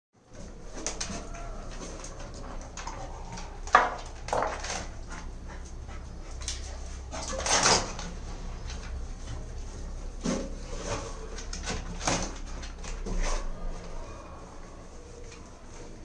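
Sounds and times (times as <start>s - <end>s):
dog whimpering: 0.4s - 3.6s.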